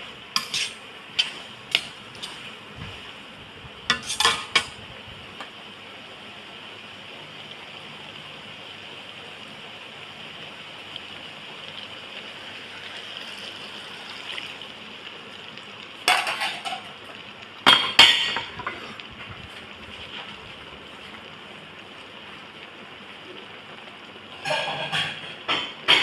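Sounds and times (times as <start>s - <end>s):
food sizzling in a pan: 0.0s - 26.0s
metal tongs clattering on pan: 0.4s - 2.5s, 3.9s - 4.8s, 16.1s - 16.9s, 24.4s - 26.0s.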